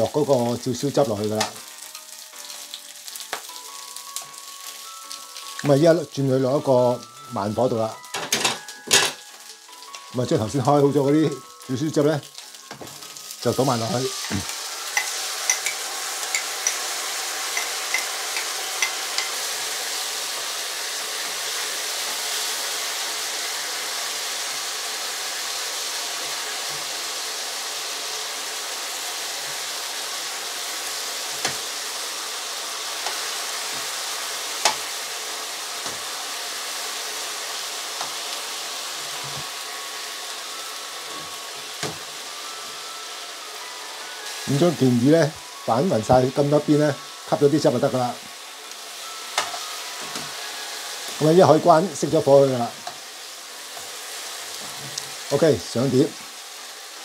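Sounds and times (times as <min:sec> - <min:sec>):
fish sizzling in a pan: 0:00.0 - 0:57.0
metal tongs clicking on pan: 0:14.2 - 0:16.9, 0:17.5 - 0:19.4, 0:34.6 - 0:34.9.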